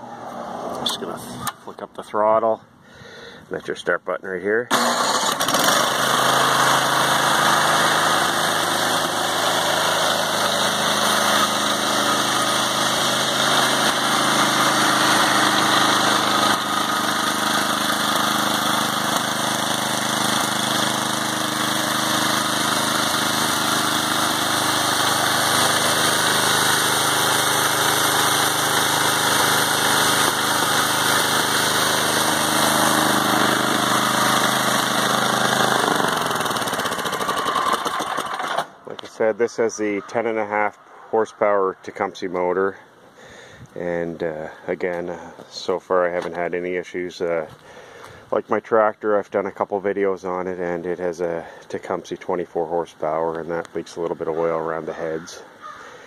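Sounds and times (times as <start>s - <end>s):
snowblower engine running: 4.7s - 38.8s.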